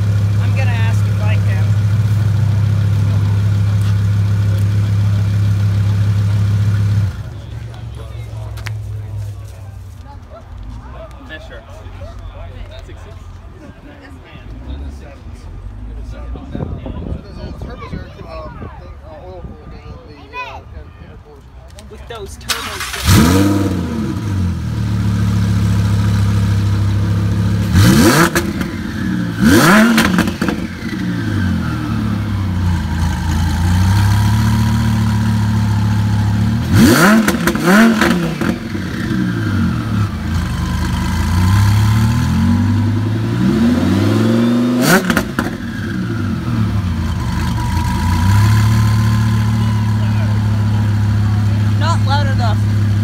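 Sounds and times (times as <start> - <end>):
sports car engine revving: 22.5 - 53.0.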